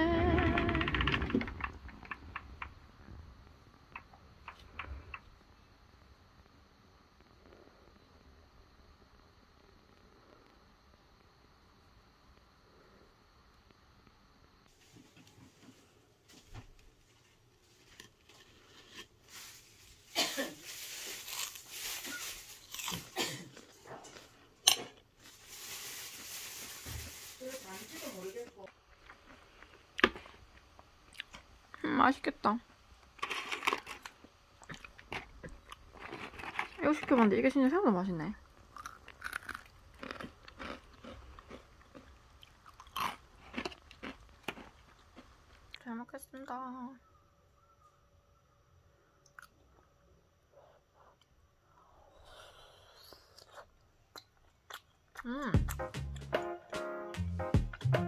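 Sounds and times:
plastic packaging crinkling: 17.7s - 23.3s, 25.2s - 28.7s, 33.2s - 34.3s, 34.9s - 37.3s
person chewing crunchy food: 20.8s - 24.4s, 28.9s - 31.5s, 33.2s - 36.9s, 38.5s - 45.8s, 52.6s - 56.3s.

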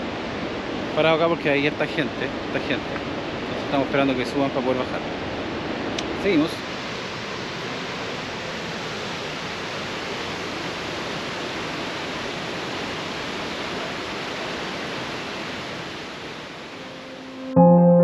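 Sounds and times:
waterfall rushing: 5.2s - 17.5s.

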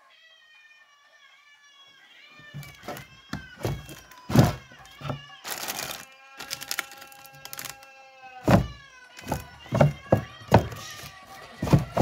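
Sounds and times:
rustling: 2.5s - 7.8s, 8.5s - 12.0s
sharp knocks: 8.5s - 12.0s.

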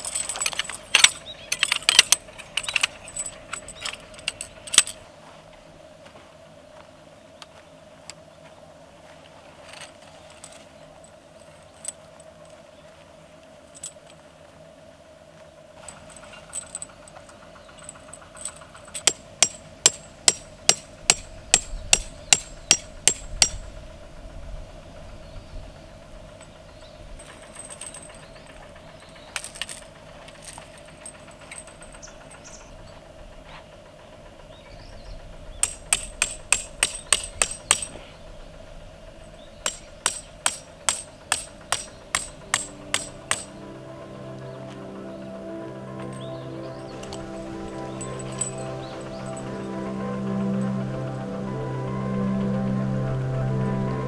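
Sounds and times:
tent pegs being hammered: 17.8s - 23.6s, 35.6s - 38.1s, 39.6s - 43.6s, 47.9s - 49.4s.

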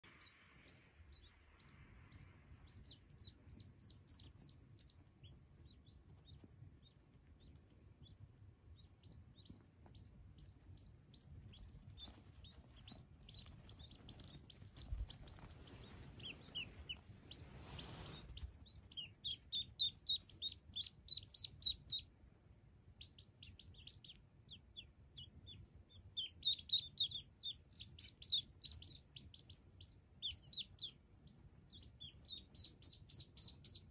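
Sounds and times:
ducklings peeping: 0.0s - 33.9s.

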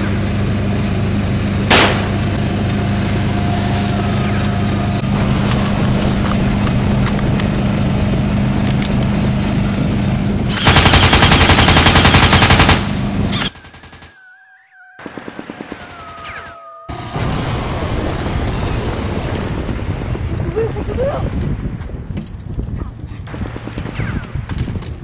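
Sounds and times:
golf cart engine running: 0.0s - 10.5s
automatic gunfire: 1.7s - 2.1s, 10.5s - 14.1s.

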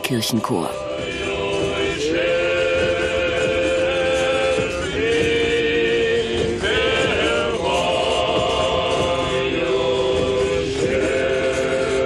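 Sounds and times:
male choir chanting: 0.0s - 12.0s.

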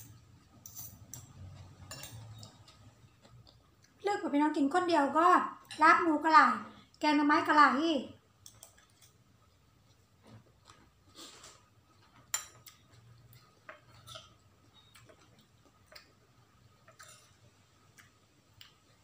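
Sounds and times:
soft chewing: 0.2s - 4.1s, 8.3s - 19.0s.

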